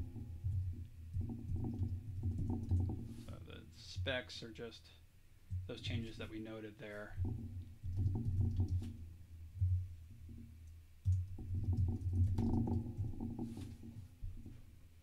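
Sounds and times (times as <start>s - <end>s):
typing on a keyboard: 1.5s - 3.0s.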